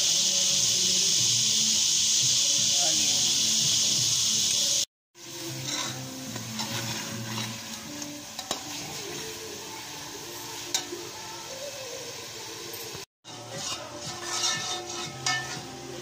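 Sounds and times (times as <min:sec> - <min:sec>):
chicken sizzling in a pot: 0:00.0 - 0:16.0
ladle scraping a pot: 0:05.5 - 0:08.9, 0:13.2 - 0:16.0.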